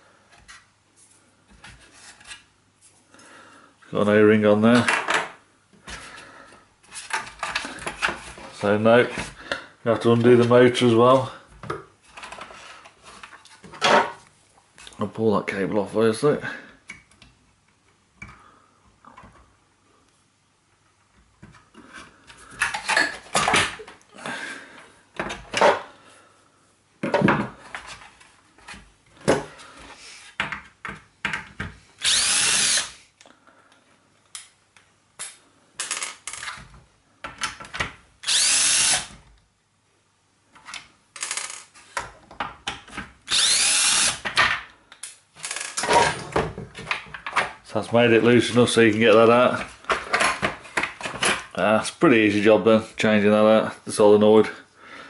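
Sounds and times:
plastic parts and tools rattling: 6.9s - 8.6s, 22.5s - 24.0s, 35.8s - 37.9s, 45.4s - 47.6s, 49.5s - 51.6s
cordless drill spinning: 32.0s - 33.0s, 38.2s - 39.2s, 43.3s - 44.2s.

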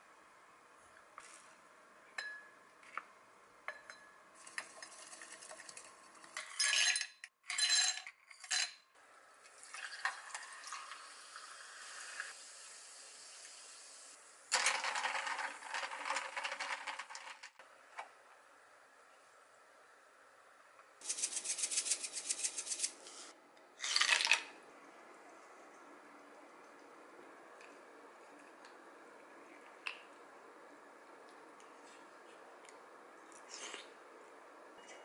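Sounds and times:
ice cubes clattering into glass: 23.8s - 24.5s.

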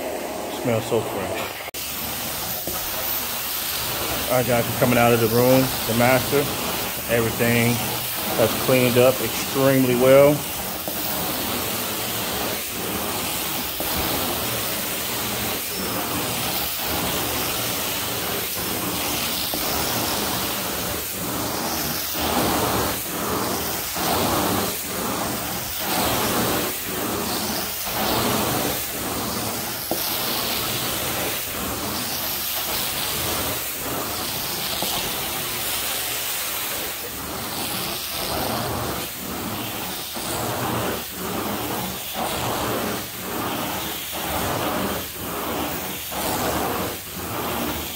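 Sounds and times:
carpet extraction wand hissing: 0.0s - 47.9s.

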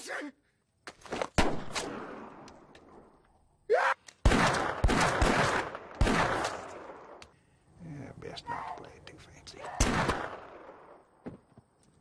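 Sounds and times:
revolver gunshots echoing: 1.4s - 2.5s, 4.2s - 7.2s, 9.7s - 11.0s.

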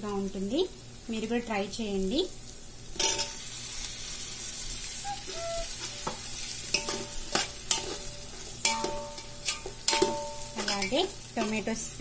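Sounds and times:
food sizzling in a pot: 0.0s - 12.0s
metal spoon knocking pot: 8.6s - 11.5s.

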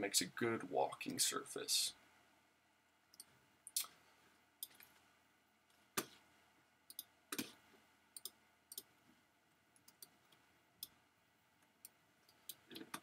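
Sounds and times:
computer mouse clicking: 8.2s - 8.9s.

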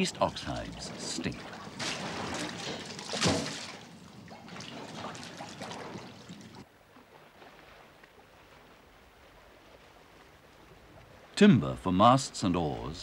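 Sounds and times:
liquid splashing and dripping: 0.5s - 6.6s.

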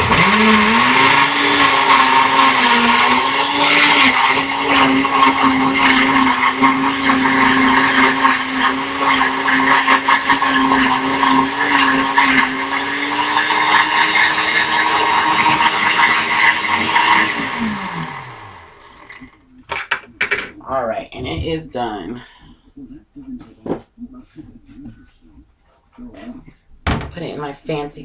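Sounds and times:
blender motor running: 0.0s - 19.4s.

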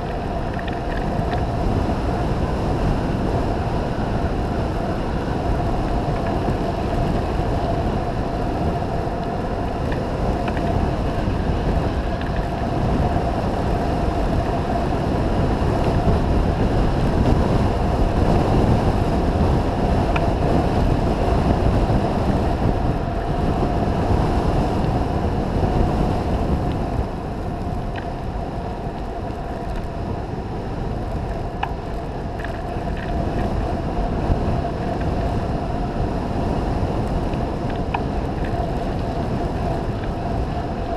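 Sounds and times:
bike tyres rolling on dirt: 0.0s - 40.9s
steady hum: 0.0s - 40.9s
wind on microphone: 0.0s - 40.9s.

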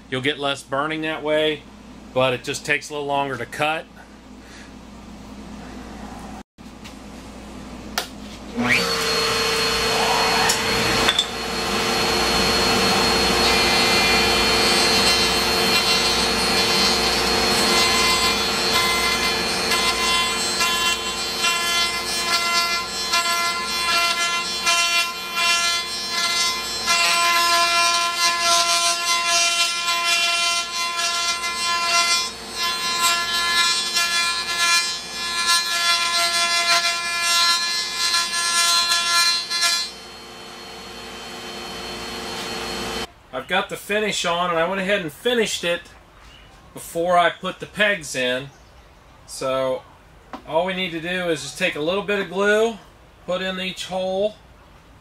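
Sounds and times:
router whining: 8.5s - 36.1s, 38.8s - 43.1s
router bit rasping into wood: 8.7s - 31.6s.

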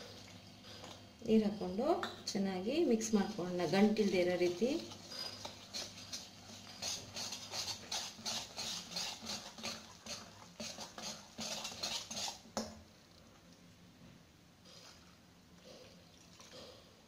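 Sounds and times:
whisk scraping metal bowl: 2.9s - 12.7s.

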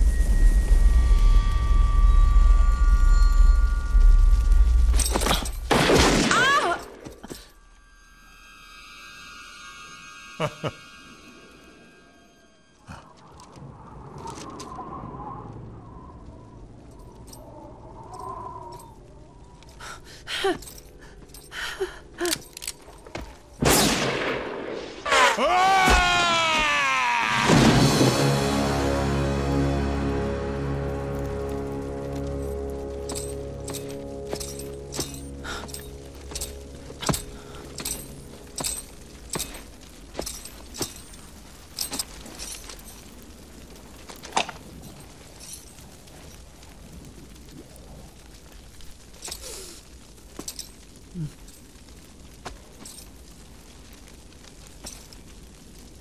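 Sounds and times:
orchestral film music: 27.4s - 40.1s
spurs jingling: 33.1s - 43.2s.

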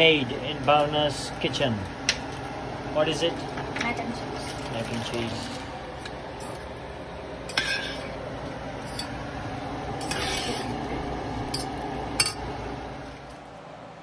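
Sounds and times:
spoon scraping through pasta: 7.5s - 8.2s, 10.0s - 10.8s.

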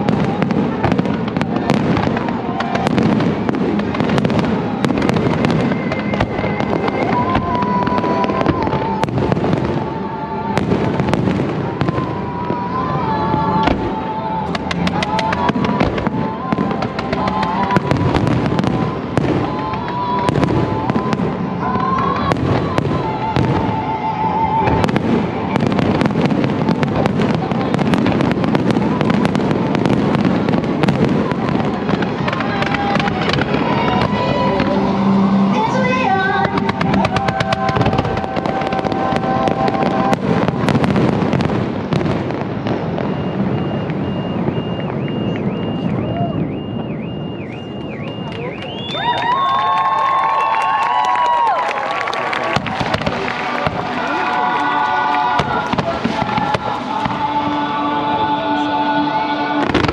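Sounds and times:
rockets firing: 0.0s - 12.6s, 13.6s - 23.9s, 24.6s - 34.8s, 36.4s - 48.2s, 59.6s - 59.9s
fireworks crackling and banging: 0.0s - 58.7s, 59.4s - 59.9s.

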